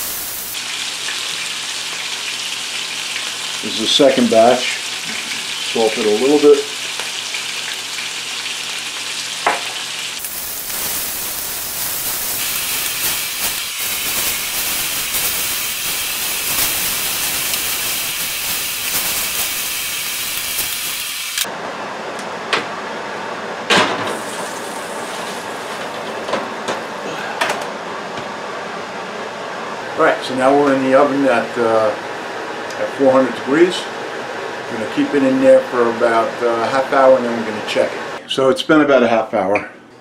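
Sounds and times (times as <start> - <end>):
chicken sizzling in a skillet: 0.0 - 21.5.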